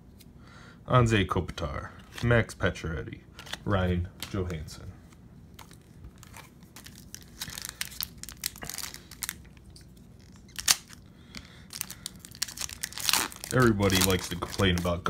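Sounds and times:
foil wrapper crinkling: 5.5 - 15.0
foil wrapper snap: 10.2 - 11.0, 11.7 - 15.0.

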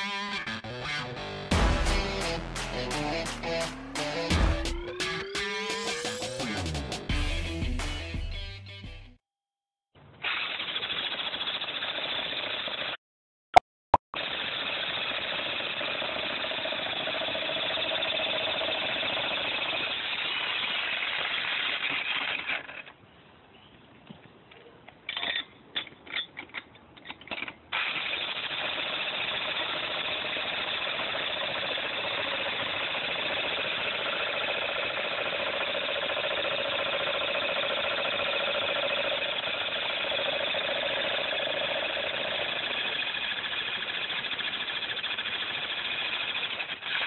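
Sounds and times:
jackhammer breaking concrete: 14.2 - 22.9, 27.3 - 47.0.

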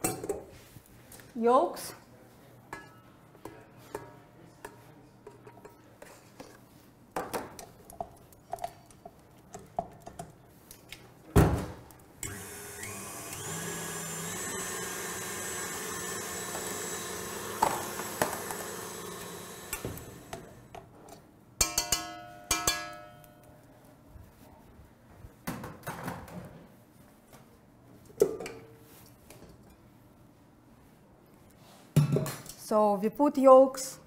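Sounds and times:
stand mixer motor whisking: 12.2 - 20.7.

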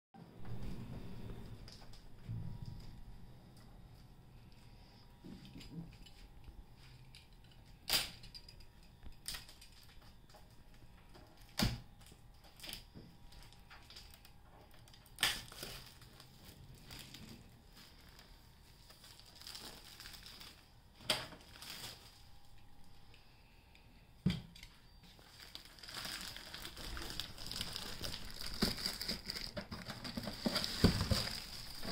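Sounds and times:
sharp plastic cracks: 7.8 - 10.0, 11.4 - 12.8, 13.4 - 16.0
plastic wrap crinkling and tearing: 9.2 - 23.0, 25.0 - 31.9.

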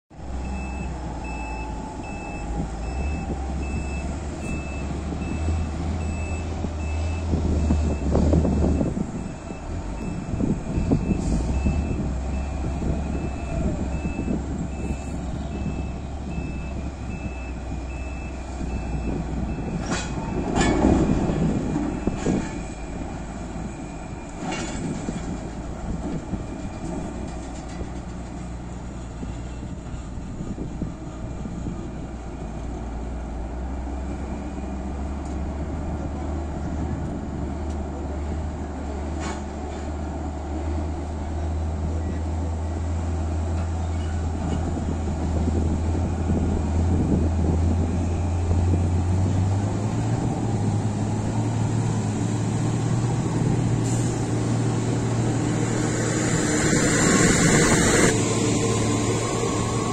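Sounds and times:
truck reversing alarm beeping: 0.2 - 25.4, 47.1 - 59.9
heavy machinery drone: 47.6 - 59.9.

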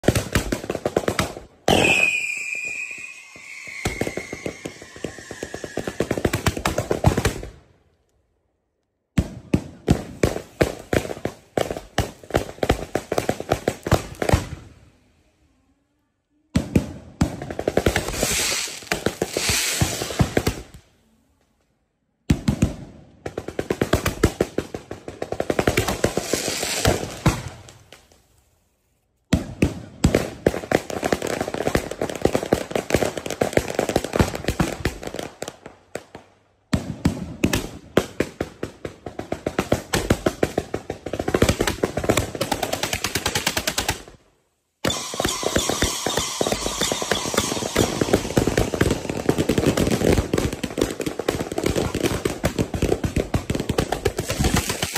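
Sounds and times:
firework crackle: 0.0 - 7.6, 17.2 - 20.8, 23.4 - 28.6, 44.8 - 54.9
firework barrage: 0.0 - 7.7, 16.6 - 20.8, 44.8 - 54.9.

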